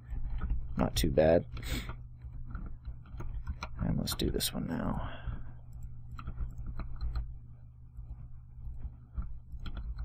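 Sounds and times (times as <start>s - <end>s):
steady low hum: 0.0s - 10.0s
mouse and keyboard clicks: 1.5s - 4.4s, 5.7s - 7.3s, 7.9s - 10.0s.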